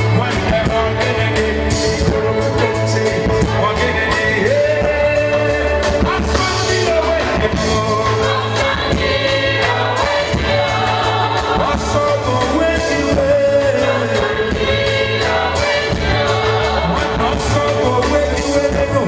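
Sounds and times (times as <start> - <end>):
man singing into microphone: 0.0 - 8.5, 11.6 - 14.4, 16.8 - 19.0
bass line: 0.0 - 19.0.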